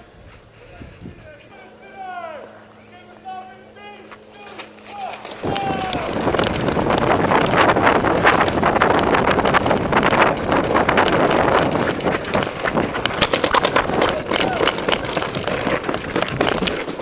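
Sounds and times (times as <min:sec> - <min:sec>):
gear jostling: 0:00.0 - 0:17.0
wind buffeting a microphone: 0:00.2 - 0:01.4, 0:05.4 - 0:17.0
paintball markers firing: 0:04.1 - 0:17.0
footfalls on dirt: 0:04.5 - 0:17.0.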